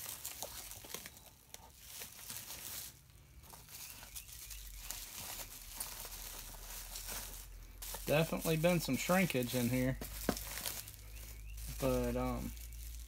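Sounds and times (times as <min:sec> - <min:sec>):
bubble wrap crinkling: 0:00.0 - 0:13.0.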